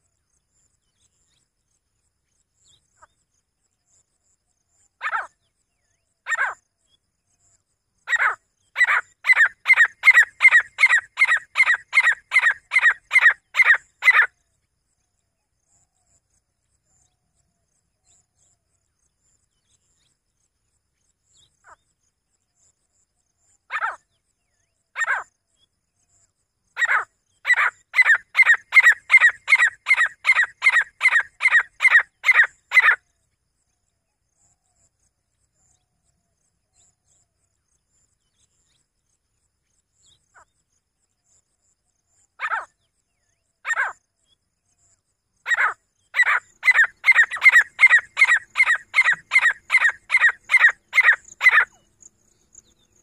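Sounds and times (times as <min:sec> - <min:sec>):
francolin calling: 0:08.1 - 0:14.3, 0:26.8 - 0:33.0, 0:42.4 - 0:42.7, 0:43.6 - 0:44.0, 0:45.4 - 0:53.0.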